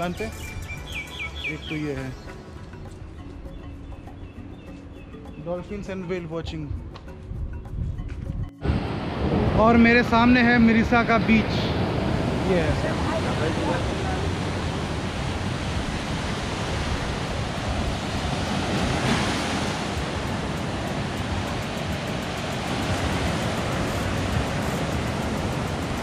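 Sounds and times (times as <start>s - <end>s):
surf breaking on a beach: 8.6s - 26.0s.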